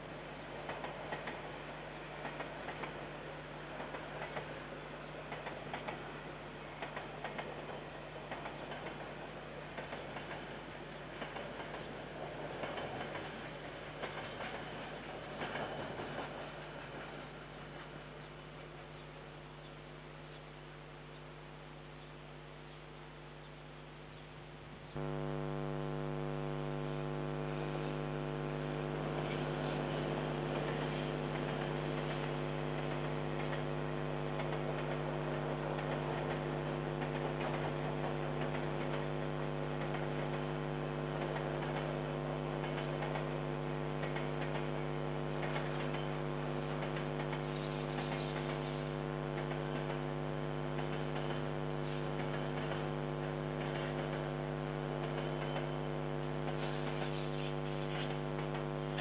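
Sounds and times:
electrical mains hum: 0:00.0 - 0:59.0
faint hiss: 0:24.1 - 0:34.5.

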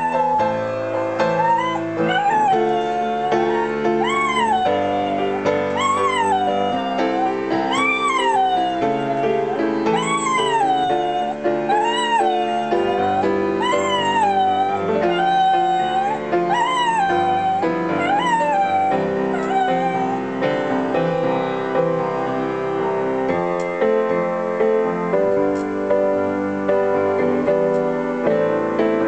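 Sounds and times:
dog howling: 0:00.0 - 0:20.8
piano chords: 0:00.0 - 0:29.0.

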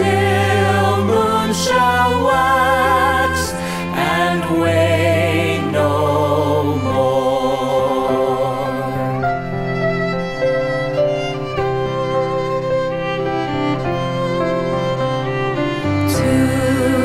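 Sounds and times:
vocal ensemble singing a hymn: 0:00.0 - 0:09.5, 0:15.9 - 0:17.0
bowed strings: 0:00.0 - 0:17.0
piano: 0:00.0 - 0:17.0.

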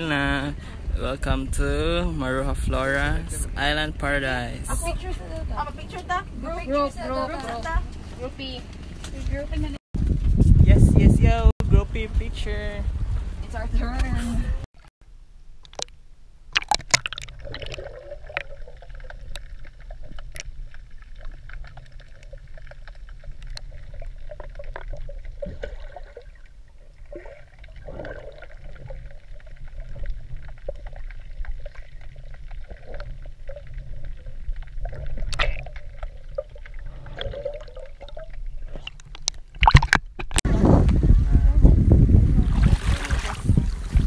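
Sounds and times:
water splashing and gurgling: 0:15.5 - 0:40.4, 0:42.2 - 0:44.0.

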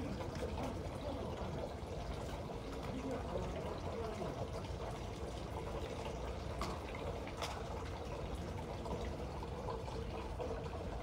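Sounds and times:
trickle of running water: 0:00.0 - 0:11.0.

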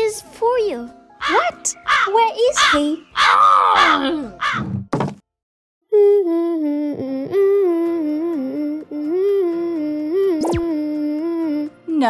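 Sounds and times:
person humming a tune: 0:05.9 - 0:12.0.

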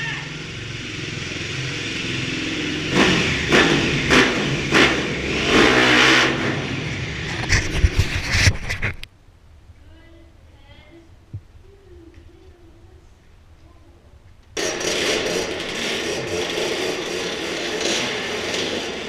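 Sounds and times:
dirt bike engine revving: 0:00.0 - 0:07.5, 0:14.6 - 0:19.0.

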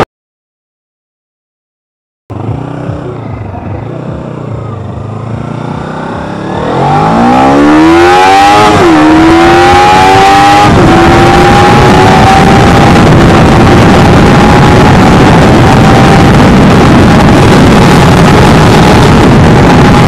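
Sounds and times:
motorcycle engine accelerating: 0:02.3 - 0:20.0
wind noise: 0:06.4 - 0:20.0.

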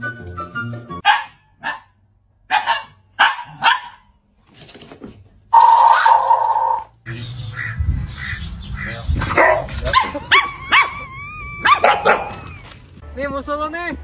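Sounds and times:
dogs barking and yapping: 0:01.0 - 0:01.9, 0:02.5 - 0:04.1, 0:05.6 - 0:06.9, 0:08.2 - 0:13.0.

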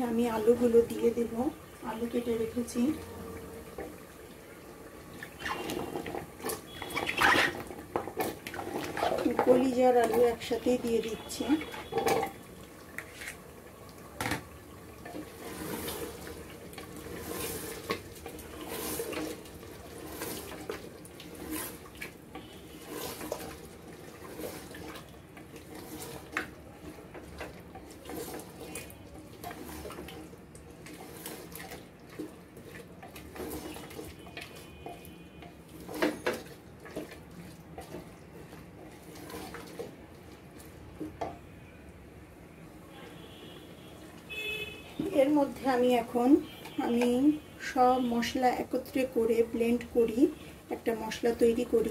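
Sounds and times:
wooden spoon scraping a pot: 0:05.2 - 0:12.4, 0:15.1 - 0:40.0.

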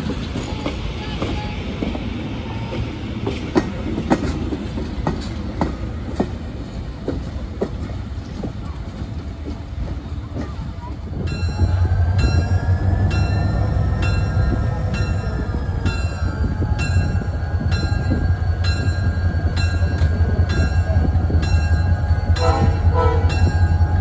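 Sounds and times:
diesel locomotive rumbling: 0:00.0 - 0:24.0
locomotive bell ringing: 0:11.3 - 0:24.0.

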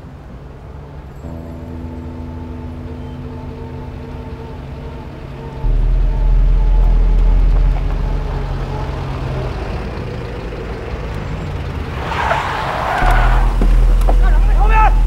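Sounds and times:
minibus engine running: 0:00.0 - 0:15.0
car braking on snow: 0:07.0 - 0:15.0.

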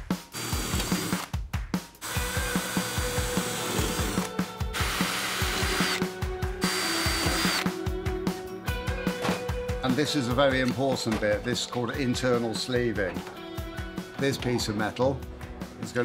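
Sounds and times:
background music with steady beat: 0:00.0 - 0:16.0
cordless drill boring through steel: 0:00.3 - 0:01.3, 0:02.0 - 0:06.0, 0:06.6 - 0:07.7.

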